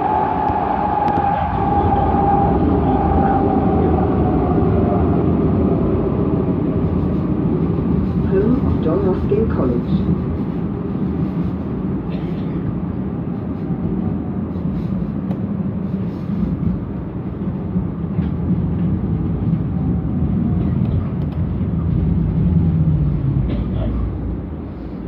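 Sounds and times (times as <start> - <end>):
tram wheels rumbling: 0.0 - 25.0.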